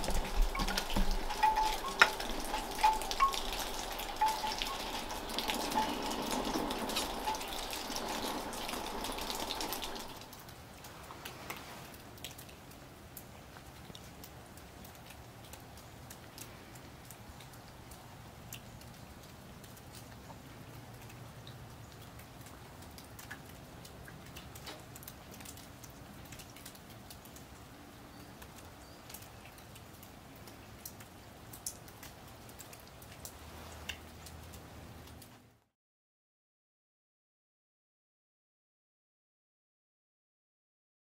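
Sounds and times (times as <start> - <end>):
light snow pattering: 0.0 - 16.8.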